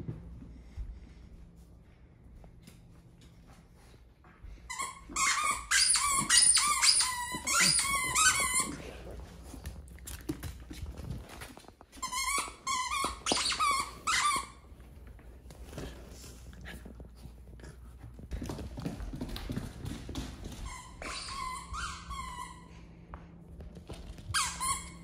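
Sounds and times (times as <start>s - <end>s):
dog toy squeaking: 4.8s - 8.7s, 12.0s - 14.6s.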